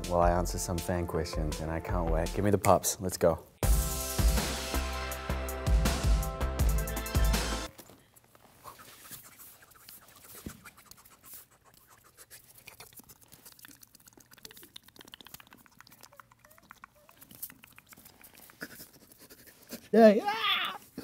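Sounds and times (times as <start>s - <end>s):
puppies scrabbling and clicking: 12.7s - 19.9s.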